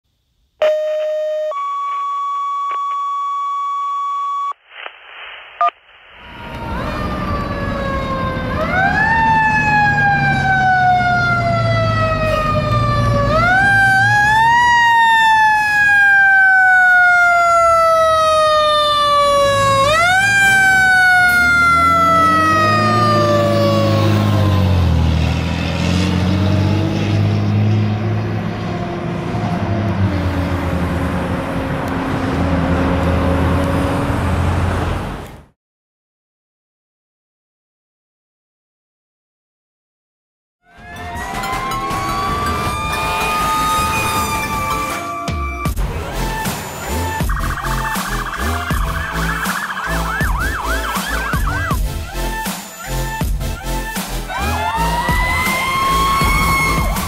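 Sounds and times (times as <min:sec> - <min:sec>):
electronic tones: 0:00.6 - 0:04.6, 0:47.2 - 0:51.8
truck engine rumble: 0:04.6 - 0:35.5, 0:40.7 - 0:57.0
deep winding siren tone: 0:06.2 - 0:25.2, 0:40.6 - 0:53.8
fire engine siren wailing: 0:06.2 - 0:34.7, 0:40.6 - 0:57.0.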